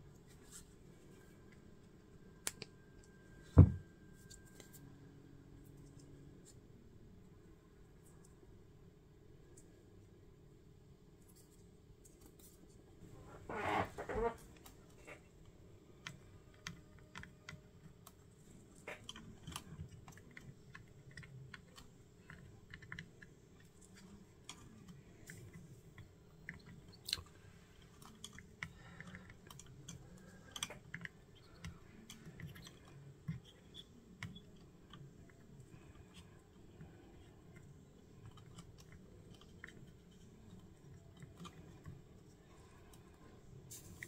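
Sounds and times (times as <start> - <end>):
crackling scrape: 13.2 - 15.2
small clicks taps and scrapes: 13.8 - 44.0.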